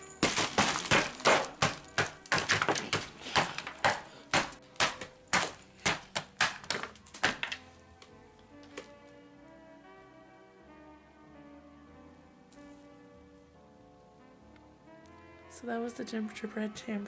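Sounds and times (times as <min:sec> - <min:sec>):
gingerbread cracking and knocking: 0:00.0 - 0:07.7.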